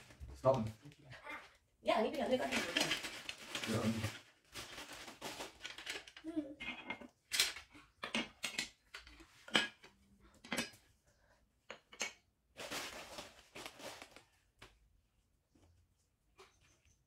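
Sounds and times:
plastic packaging rustling: 2.2 - 6.3, 12.5 - 14.6.

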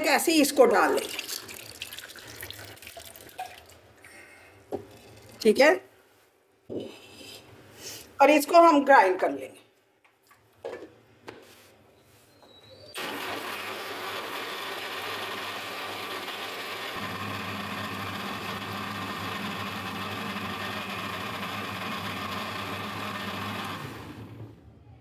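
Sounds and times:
electric blender running: 13.0 - 24.6.

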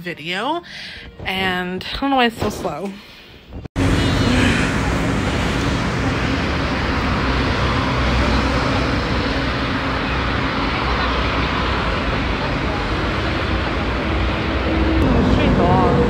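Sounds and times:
road traffic rumble: 3.8 - 16.0.

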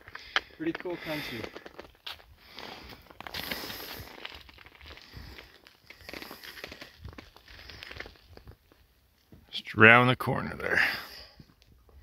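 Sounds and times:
footsteps crunching on gravel: 0.2 - 9.4.

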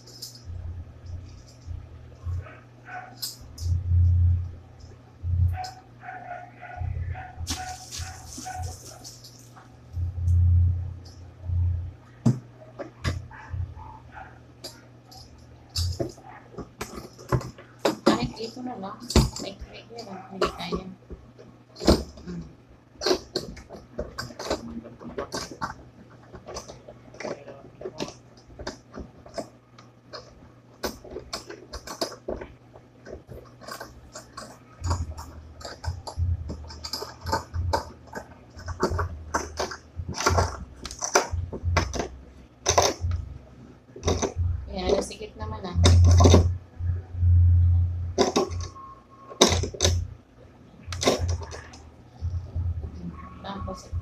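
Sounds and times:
metal stand clicking and rattling: 0.0 - 3.8, 14.6 - 20.9, 23.0 - 43.2, 50.9 - 51.8
low handling rumble: 0.0 - 6.0, 6.7 - 16.0, 33.9 - 48.9, 49.6 - 54.0
steady low hum: 0.0 - 54.0.

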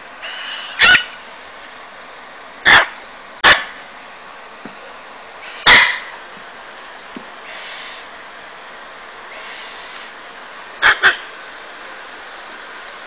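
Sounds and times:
parrot chicks screeching squawks: 0.2 - 1.2, 5.4 - 6.1, 9.3 - 10.1, 10.8 - 11.3.

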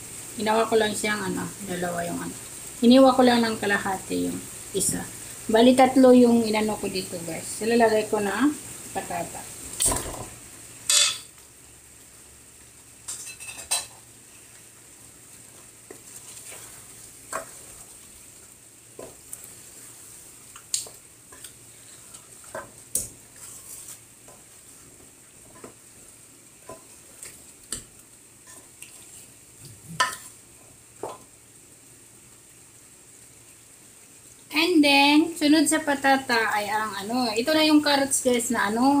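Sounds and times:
faint sizzle: 0.0 - 39.0
wooden spatula scraping a pot: 15.5 - 18.1, 21.3 - 25.8.

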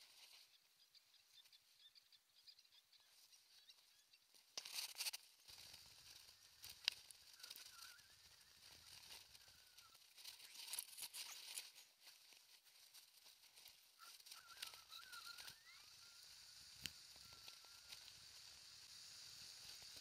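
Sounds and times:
distant birds chirping: 0.0 - 20.0
sharp clicks and rustles: 4.3 - 18.8.

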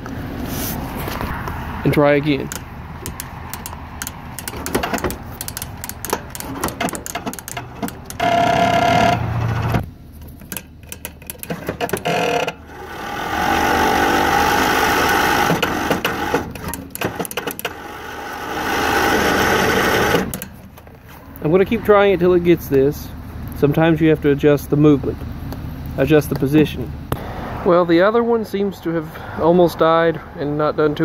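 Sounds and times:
electric starter cranking engine: 2.5 - 9.8, 10.8 - 20.6
clicks and handling knocks: 2.5 - 12.6.

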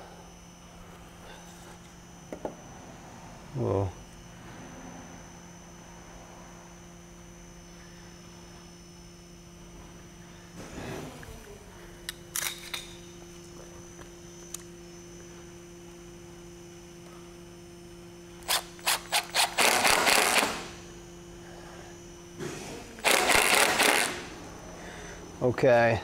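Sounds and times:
cordless drill driving screw: 18.4 - 20.7, 23.0 - 24.3.

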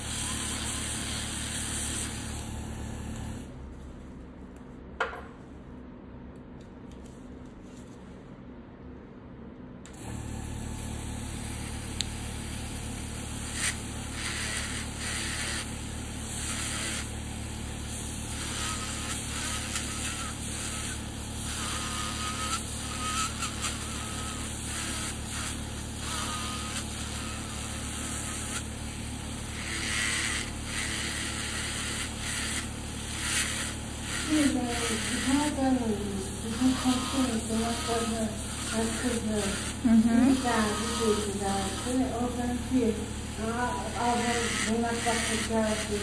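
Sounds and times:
nail drill humming: 0.0 - 3.5, 9.9 - 46.0
drill grinding nail: 11.5 - 46.0.

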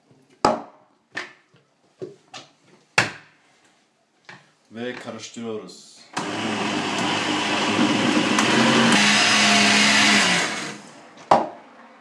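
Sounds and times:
blender running: 6.2 - 11.0.

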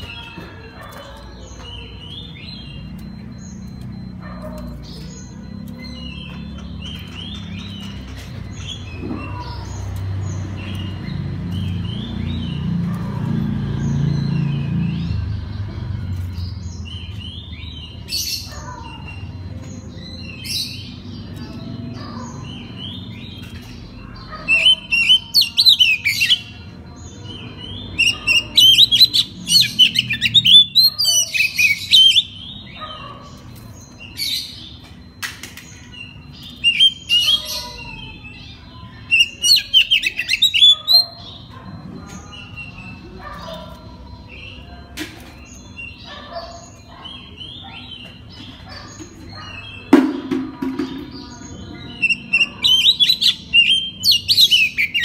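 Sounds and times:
bird singing whistled phrases: 36.0 - 38.5.

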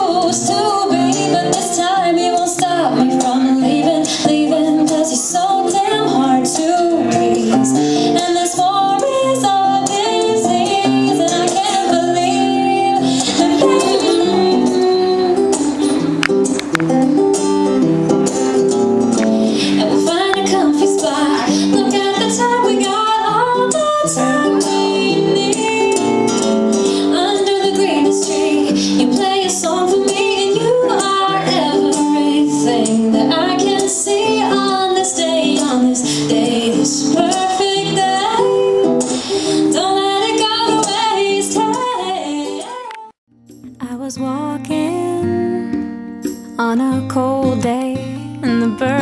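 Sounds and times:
woman singing: 0.0 - 16.1, 19.7 - 43.2, 43.8 - 45.8, 46.5 - 49.0
acoustic guitar strumming: 10.5 - 20.6, 43.3 - 49.0.

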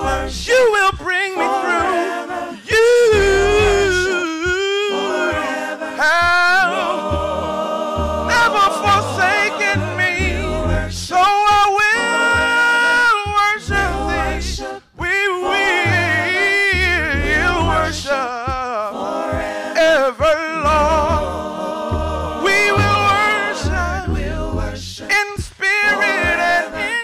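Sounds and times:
low bass notes: 0.0 - 0.7, 2.8 - 4.7, 6.0 - 11.2, 13.2 - 14.7, 15.5 - 18.6, 20.6 - 25.0
group singing gospel: 0.0 - 27.0.

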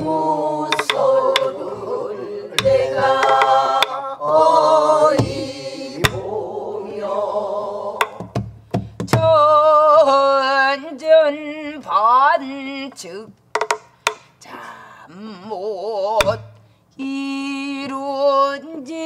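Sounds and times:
barrel drum strokes: 0.0 - 6.3
voices singing together: 0.0 - 8.4, 9.2 - 13.2.

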